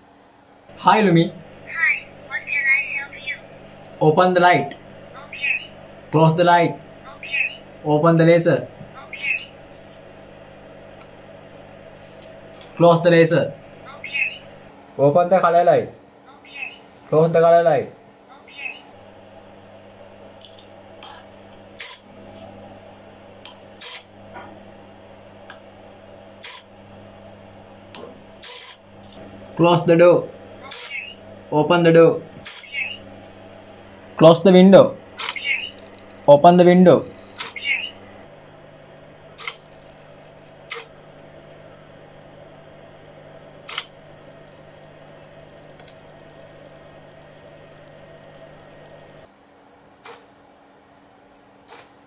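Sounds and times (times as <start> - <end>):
low steady hum: 0.0 - 51.3
short sharp hissing bursts: 26.4 - 26.7.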